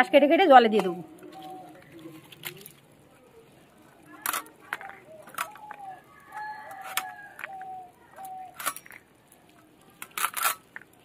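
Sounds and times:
crab shells cracking: 3.7s - 11.0s.

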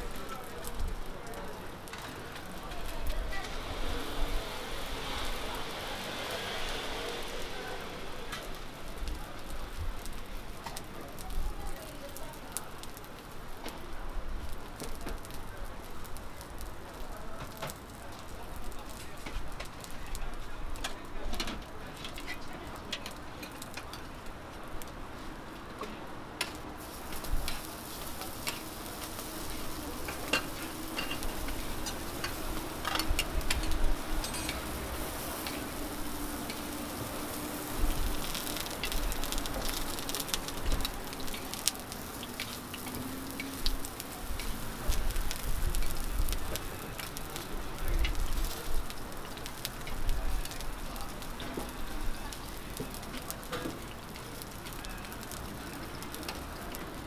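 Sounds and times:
pancakes sizzling on griddle: 0.0s - 57.0s
metal spatula scraping griddle: 27.1s - 37.0s.

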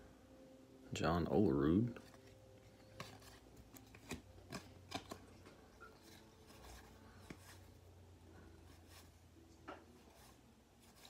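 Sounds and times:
cards being flipped by hand: 2.0s - 7.8s, 9.9s - 11.0s.

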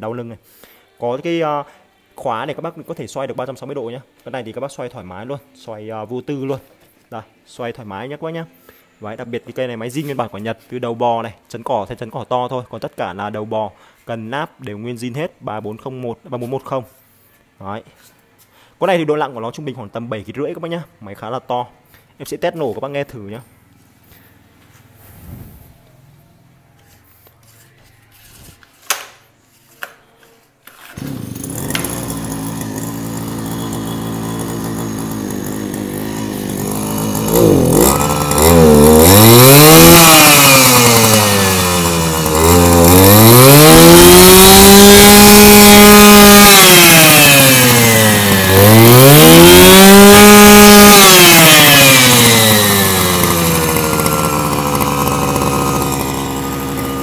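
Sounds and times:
brush cutter engine revving: 30.7s - 57.0s.

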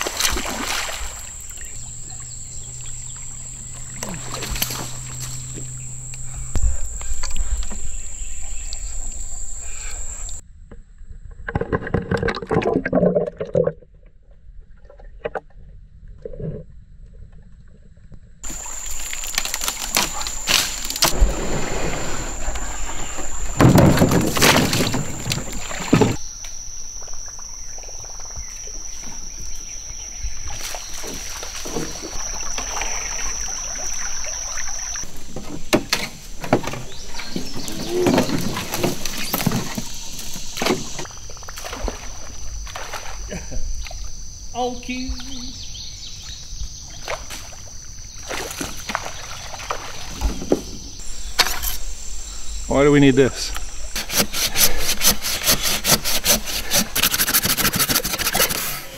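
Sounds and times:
water sloshing: 0.0s - 10.4s, 18.4s - 26.2s, 30.3s - 43.3s, 47.0s - 51.8s
high-pitched drone: 0.9s - 10.4s
knocks against kayak hull: 21.0s - 26.2s.

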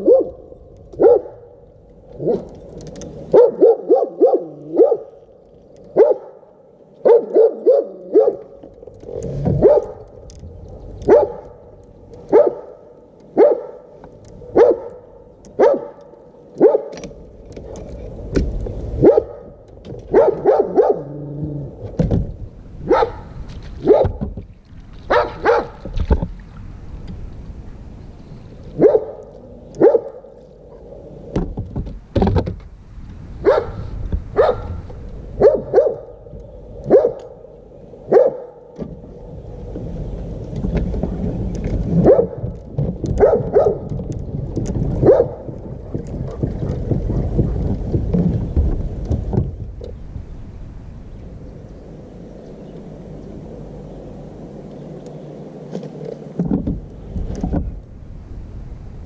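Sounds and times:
dogs barking: 0.0s - 0.4s, 1.0s - 1.5s, 3.3s - 5.2s, 6.0s - 6.4s, 7.0s - 8.5s, 9.6s - 10.0s, 11.1s - 11.6s, 12.3s - 12.8s, 13.4s - 13.9s, 14.5s - 17.0s, 19.0s - 19.5s, 20.1s - 21.2s, 22.8s - 24.2s, 25.1s - 25.8s, 28.8s - 30.3s, 33.4s - 33.8s, 34.4s - 34.8s, 35.4s - 36.2s, 36.8s - 37.4s, 38.1s - 38.7s, 42.0s - 42.4s, 43.2s - 43.9s, 45.0s - 45.5s.

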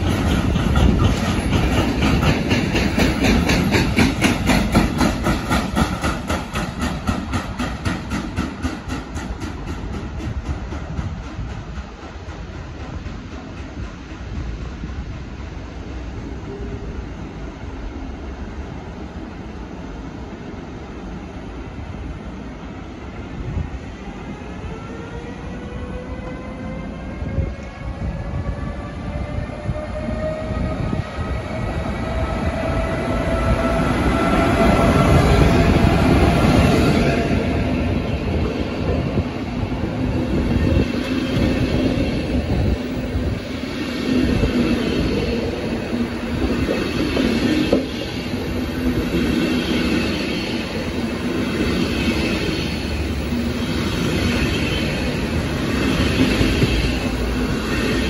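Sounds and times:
train coaches rumbling past: 0.0s - 58.0s
locomotive whine: 24.2s - 58.0s.

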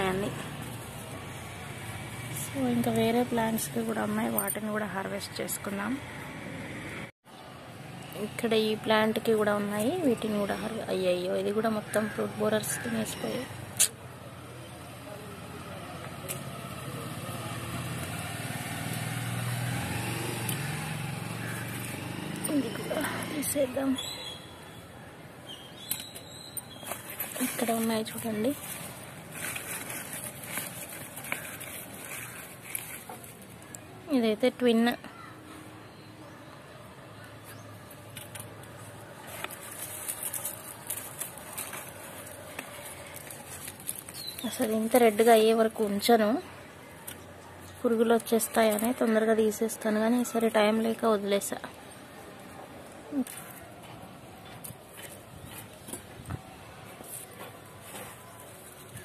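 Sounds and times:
vehicle engine humming: 0.0s - 24.0s
leaves rustling and crackling: 26.7s - 34.0s, 38.1s - 45.5s.

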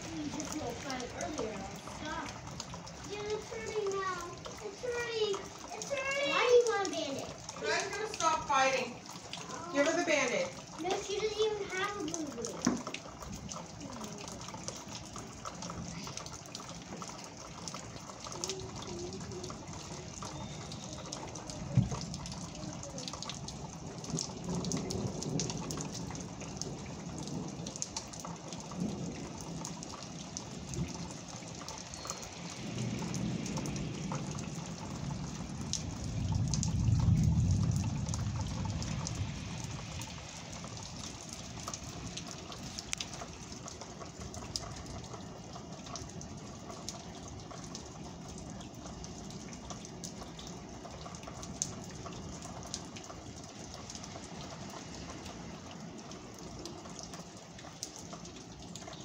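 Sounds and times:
rain pattering: 0.0s - 59.0s
thunder rumble: 23.4s - 31.2s, 32.2s - 42.5s.

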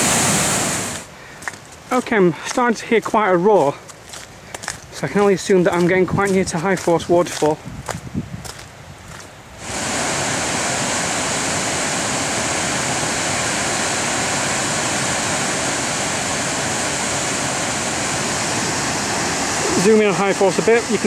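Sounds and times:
waterfall rushing: 0.0s - 2.6s, 9.6s - 21.0s.

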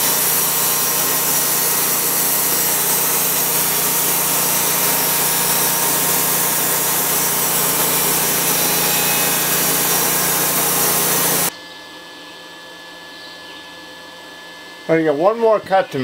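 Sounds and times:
bandsaw sawmill engine running: 0.0s - 11.5s.

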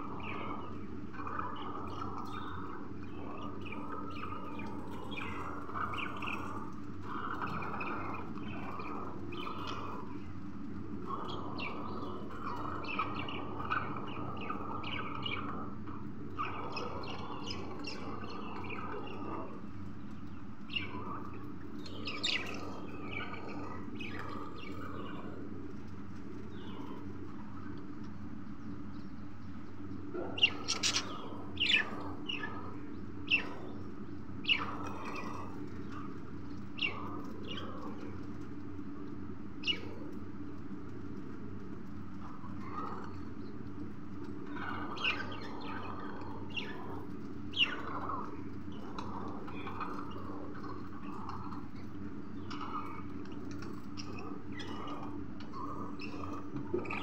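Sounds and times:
low hum: 0.0s - 57.0s
budgerigars chirping: 30.4s - 31.9s.

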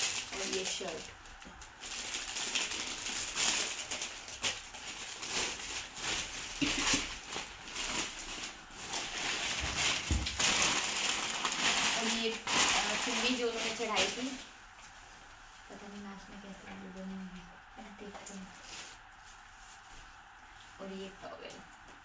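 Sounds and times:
plastic packaging crinkling: 0.0s - 14.5s
wrapping paper rustling: 0.0s - 17.2s, 17.8s - 21.2s.

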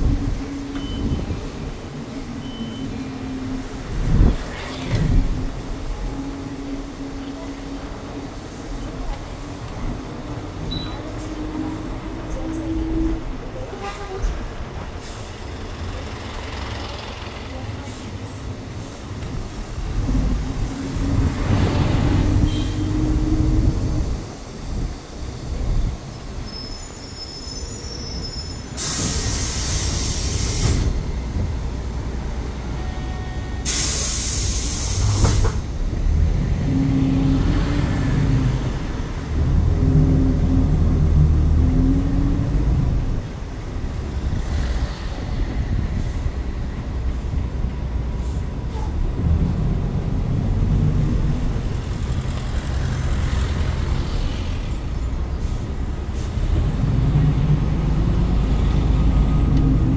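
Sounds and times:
bus engine drone: 0.0s - 59.9s
bus air brakes hissing: 12.3s - 17.2s, 25.8s - 31.1s, 32.6s - 35.8s, 48.0s - 49.1s, 52.9s - 56.8s.

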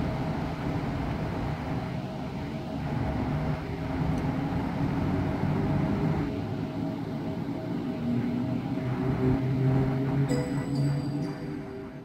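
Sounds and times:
electric locomotive running hum: 0.0s - 12.0s
faint steady high tone: 10.3s - 12.0s.

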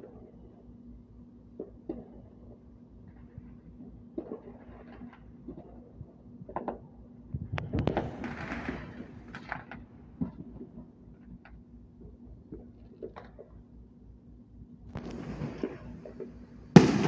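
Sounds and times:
faint steady hum: 0.0s - 17.0s
fireworks bangs and pops: 7.7s - 10.6s, 14.9s - 17.0s.

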